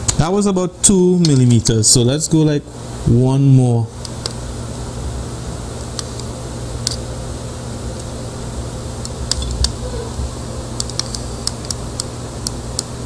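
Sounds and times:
low hum: 4.5 - 13.0.

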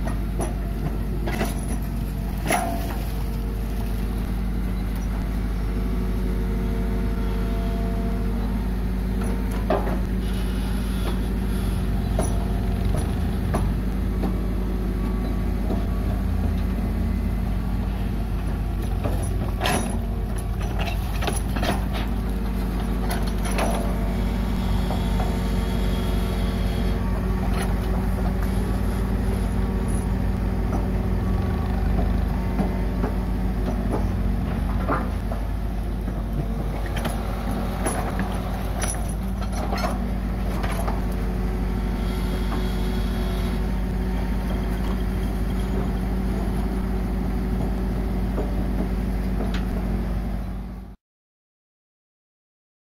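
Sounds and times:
excavator bucket knocks and clanks: 0.0 - 3.2, 9.2 - 10.1, 12.0 - 14.5, 18.4 - 24.0, 31.8 - 41.2
diesel engines running: 0.0 - 51.0.

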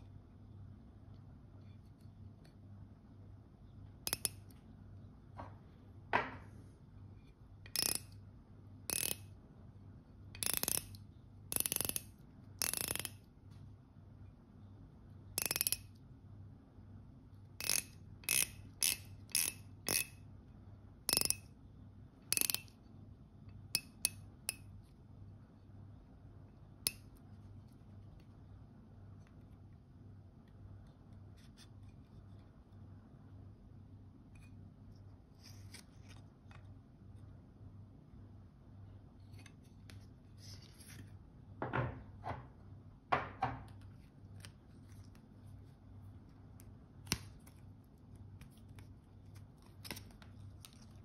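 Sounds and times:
watch bezel ratcheting clicks: 7.7 - 8.1, 8.9 - 9.2, 10.4 - 13.2, 15.4 - 15.9, 17.6 - 20.2, 22.3 - 22.7.

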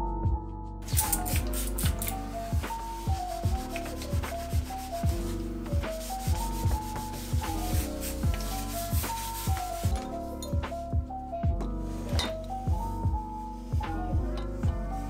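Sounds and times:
background music with steady beat: 0.0 - 15.0
cloth rubbing on wooden tabletop: 1.5 - 10.0.

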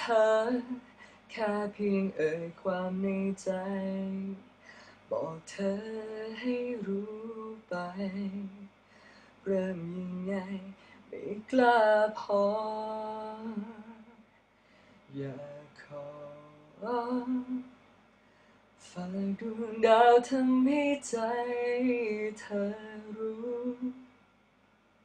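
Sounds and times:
man singing unaccompanied: 0.0 - 8.8, 9.4 - 14.2, 15.1 - 17.7, 18.8 - 24.1.

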